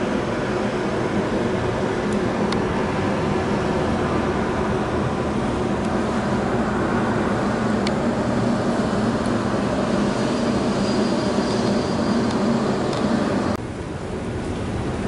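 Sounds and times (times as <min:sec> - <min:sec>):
faint high whine: 0:00.0 - 0:14.7
jet engines humming: 0:00.0 - 0:15.0.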